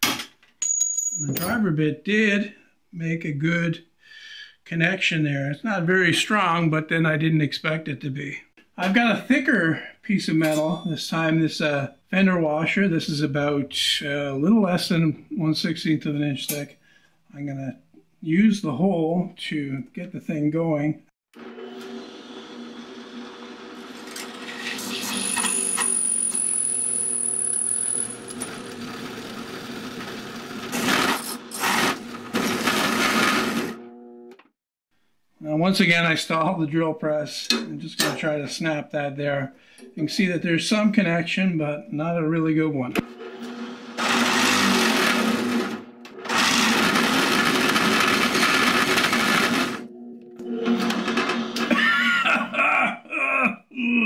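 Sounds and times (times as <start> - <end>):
drill press running: 21.4 - 34.0, 43.0 - 51.8
steel grinding on steel: 24.3 - 27.4
drill press motor hum: 43.1 - 51.7.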